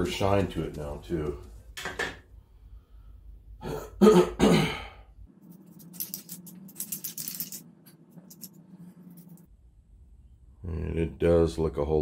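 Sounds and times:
person clearing throat: 0:03.6 - 0:05.0
scratchy handling noises: 0:05.4 - 0:09.5.

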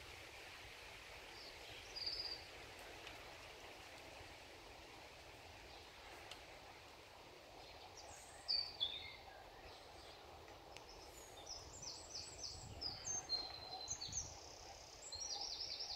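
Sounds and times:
low wind rumble: 0:00.0 - 0:14.9
songbird singing: 0:01.3 - 0:02.6, 0:07.5 - 0:15.9.

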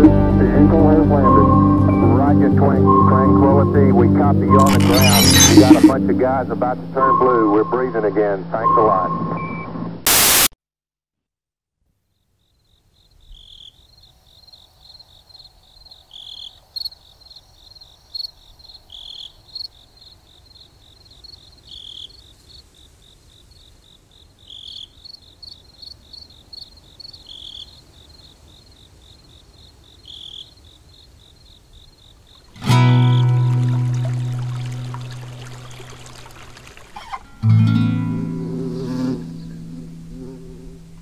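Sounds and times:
brief sharper chirps: 0:04.6 - 0:06.0
crickets trilling: 0:12.2 - 0:37.3.

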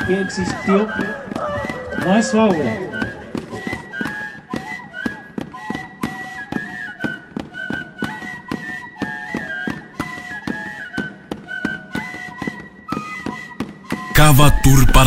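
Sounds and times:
percussive beat: 0:00.0 - 0:04.8, 0:13.6 - 0:15.0
cane flutes playing folk melody: 0:00.0 - 0:15.0.

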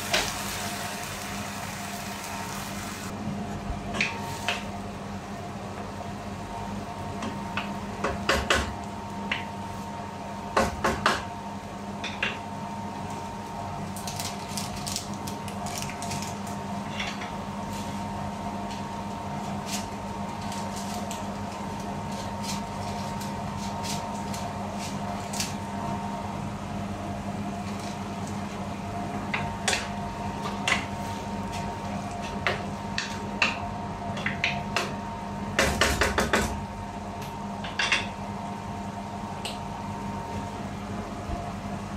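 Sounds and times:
steady hum: 0:15.3 - 0:41.9.

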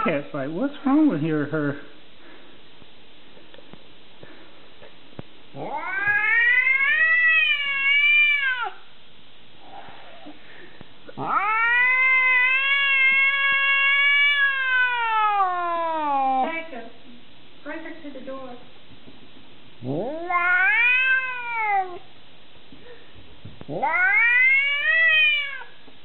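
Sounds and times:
cat yowling: 0:05.6 - 0:08.8, 0:11.2 - 0:16.6, 0:19.9 - 0:22.1, 0:23.7 - 0:25.8.

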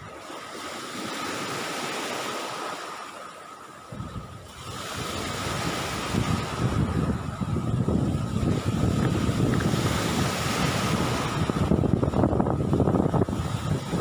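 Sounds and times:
sea surf washing on shore: 0:00.0 - 0:14.0
wind buffeting microphone: 0:03.8 - 0:14.0.

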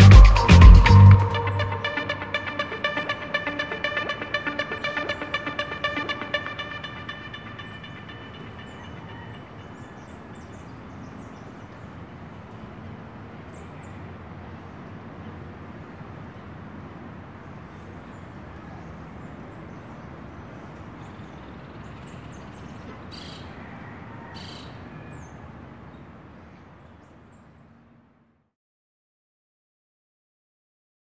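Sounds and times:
music: 0:00.0 - 0:09.4.

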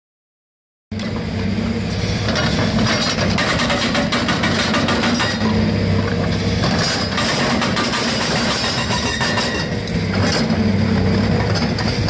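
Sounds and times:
diesel engine running: 0:00.9 - 0:12.0
hydraulic breaker hammering concrete: 0:02.4 - 0:12.0.

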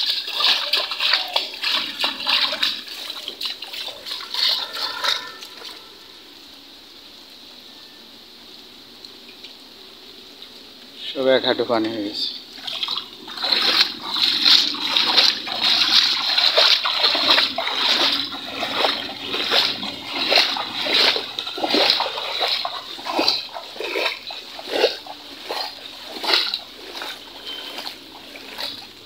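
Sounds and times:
footsteps splashing in water: 0:00.0 - 0:05.9, 0:12.5 - 0:29.0.

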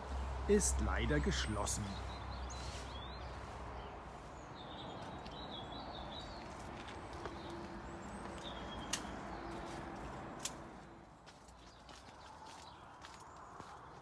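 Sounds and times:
songbird chirping: 0:00.0 - 0:14.0.

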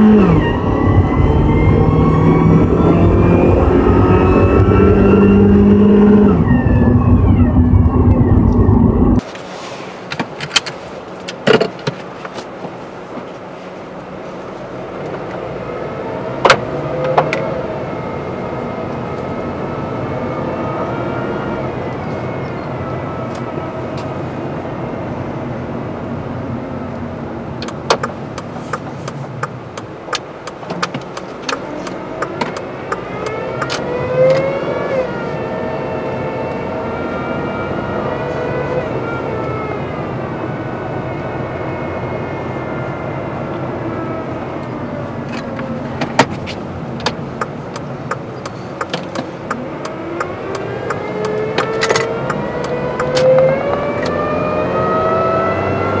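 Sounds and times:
car engine hum: 0:00.0 - 0:56.0
tyre and road noise: 0:00.0 - 0:56.0
sharp clicks and knocks: 0:27.6 - 0:33.8, 0:46.0 - 0:54.2.

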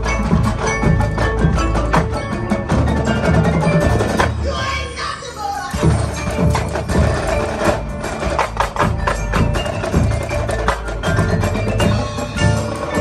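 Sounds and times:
marching band playing: 0:00.0 - 0:13.0
drum hits: 0:05.7 - 0:13.0.

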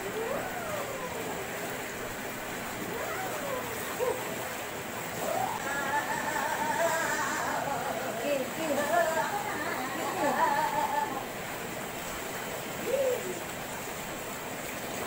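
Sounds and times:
water splashing in a pool: 0:00.0 - 0:15.0
voices calling out: 0:05.1 - 0:11.4.

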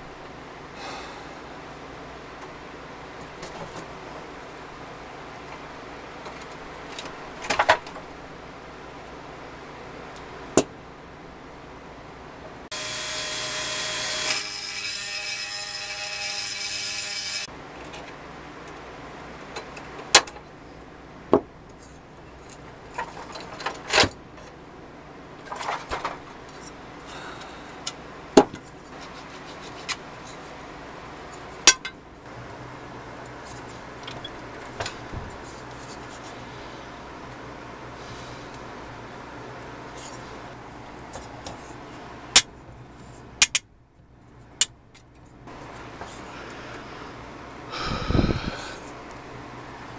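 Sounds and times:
rotary tool running: 0:12.7 - 0:17.5.

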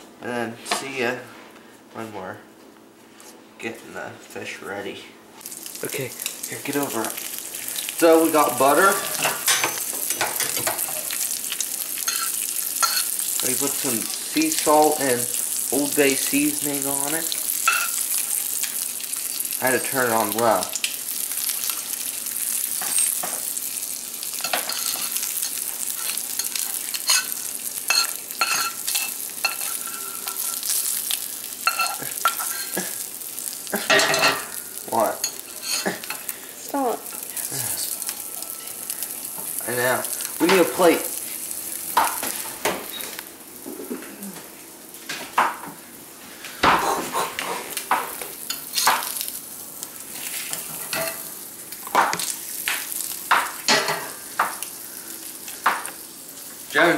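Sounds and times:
fish sizzling in butter: 0:05.4 - 0:43.7, 0:44.5 - 0:56.9
metal utensil scraping a pan: 0:24.4 - 0:30.7, 0:35.2 - 0:36.2.

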